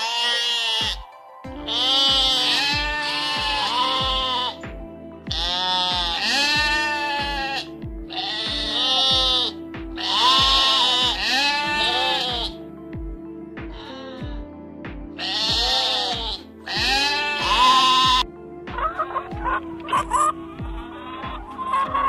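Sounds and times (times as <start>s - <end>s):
sheep bleating: 0.0s - 4.6s, 5.3s - 12.6s, 15.2s - 18.3s
music with thumping beat: 0.8s - 22.0s.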